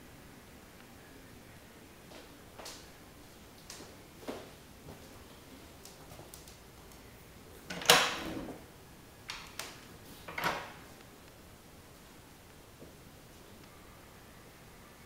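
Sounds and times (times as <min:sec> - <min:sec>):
closet door clicking and knocking: 0:07.7 - 0:08.6, 0:10.3 - 0:10.8.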